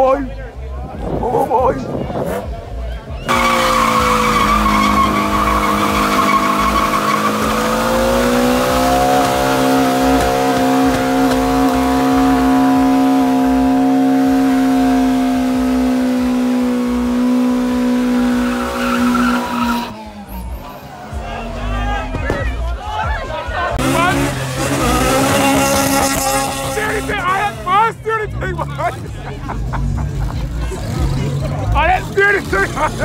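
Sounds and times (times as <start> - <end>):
tyres squealing on tarmac: 3.1 - 13.8, 18.0 - 22.1
car engine at high revs: 3.3 - 21.0, 23.8 - 27.8.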